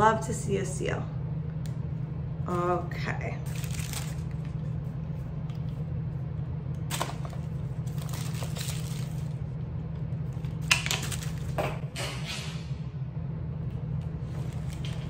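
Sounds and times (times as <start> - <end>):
steady low hum: 0.0 - 15.0
paper packaging crinkling: 3.4 - 4.8, 6.9 - 9.5, 10.4 - 11.6.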